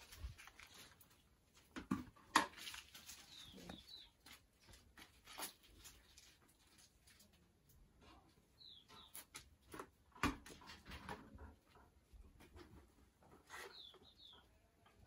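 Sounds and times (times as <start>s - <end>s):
high bird chirp: 8.6s - 9.2s.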